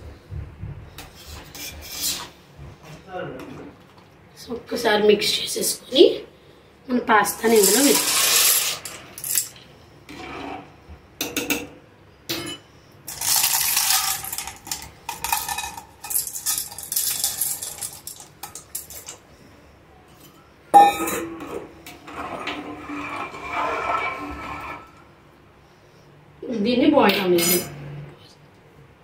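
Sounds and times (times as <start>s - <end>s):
spoon scraping metal bowl: 1.2s - 2.3s, 7.4s - 9.5s, 21.0s - 25.1s
dry pasta rattling into pot: 7.4s - 9.6s, 13.1s - 19.2s
stirring in pot: 21.4s - 25.1s.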